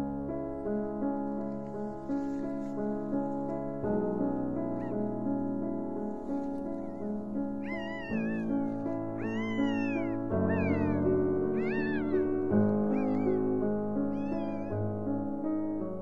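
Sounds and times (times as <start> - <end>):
soft piano music: 0.0 - 16.0
puppies squealing: 7.6 - 14.8.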